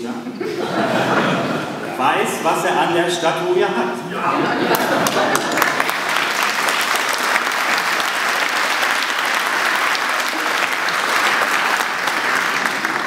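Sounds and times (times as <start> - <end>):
audience applauding: 4.6 - 13.0.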